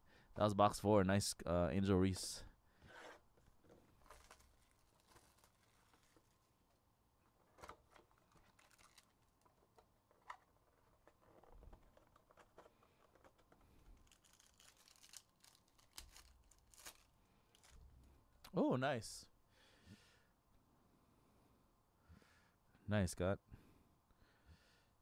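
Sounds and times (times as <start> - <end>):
foil wrapper tearing: 4.0 - 6.4, 7.6 - 9.5, 14.0 - 17.8
cards clicking and scratching: 7.6 - 17.8.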